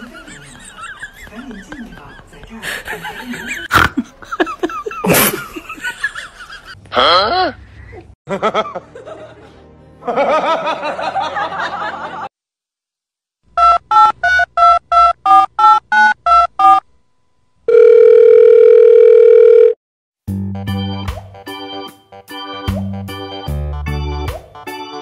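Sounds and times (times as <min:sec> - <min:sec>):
steady phone tone: 0:17.7 - 0:19.8.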